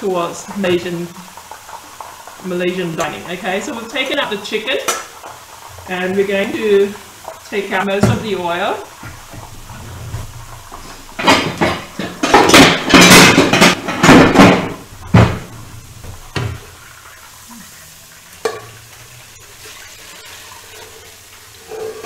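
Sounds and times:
pots knocking down on cooktop: 7.2s - 17.1s
spatula scraping metal pans: 19.6s - 22.0s.

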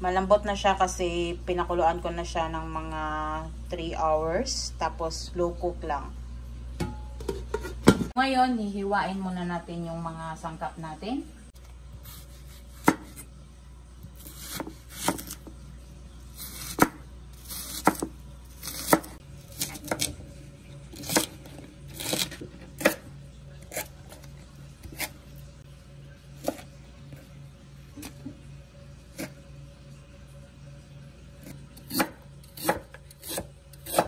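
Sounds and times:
knife chopping on cutting board: 12.2s - 13.2s, 14.2s - 15.5s, 16.4s - 20.1s, 31.8s - 34.0s.

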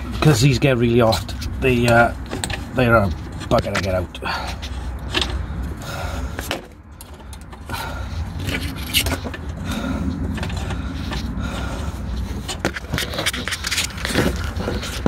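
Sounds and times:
metal spanner clinking and scraping: 0.0s - 5.8s, 6.4s - 9.6s
steady low rumble: 0.0s - 15.0s.

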